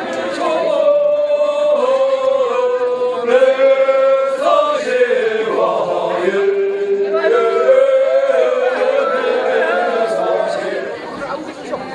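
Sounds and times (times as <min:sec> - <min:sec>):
men chanting together: 0:00.1 - 0:11.0.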